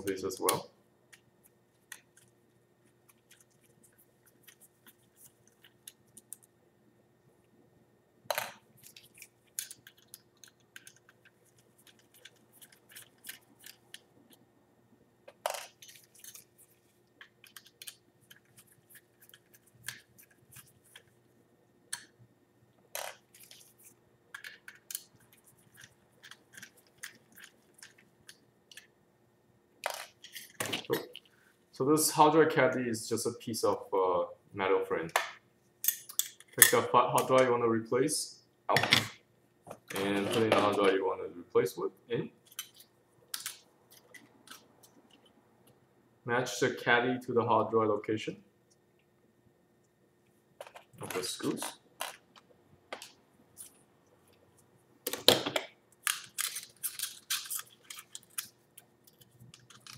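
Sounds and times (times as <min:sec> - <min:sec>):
faint steady hum: 0:00.0 - 0:59.9
small metal parts handled: 0:56.0 - 0:59.9.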